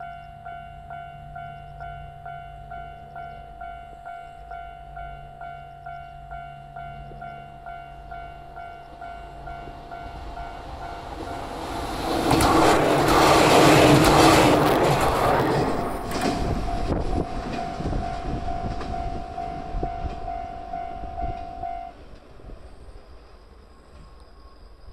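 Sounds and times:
level-crossing warning bell ringing: 0.0 - 12.1, 15.9 - 22.0
train wheels rushing on rails: 8.2 - 24.2.

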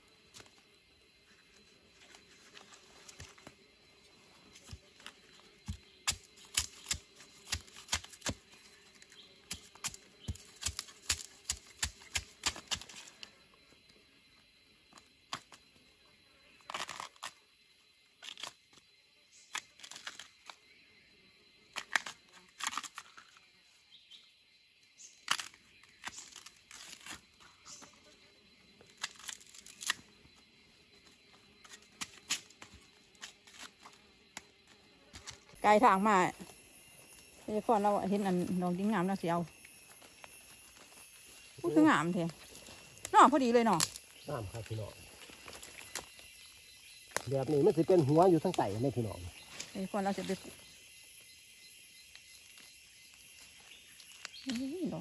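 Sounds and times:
dry plant stems snapping: 29.0 - 30.0, 43.8 - 44.1, 45.3 - 46.2.

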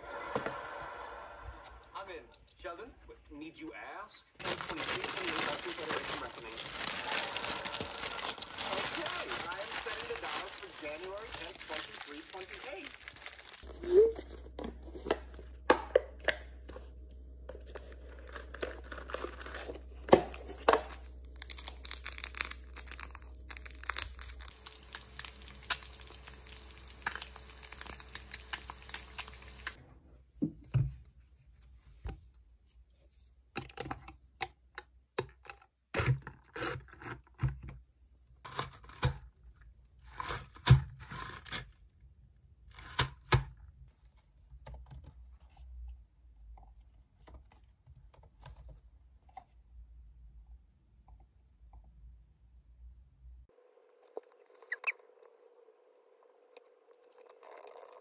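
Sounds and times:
rustling and crinkling: 4.4 - 15.6, 16.6 - 29.8.

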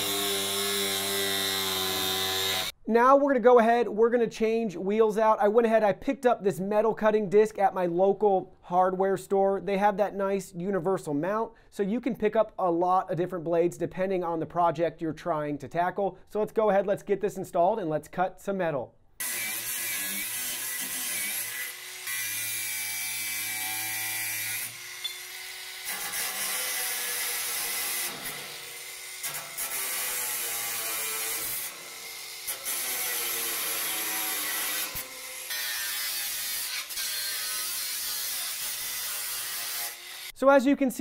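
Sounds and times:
angle grinder cutting metal: 0.0 - 2.7, 19.2 - 40.4.

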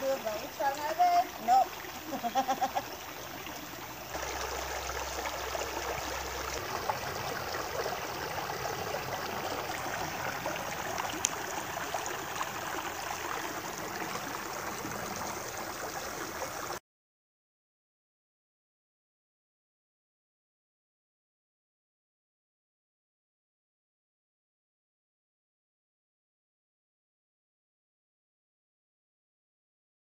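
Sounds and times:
creek water flowing over rock: 0.0 - 16.8.

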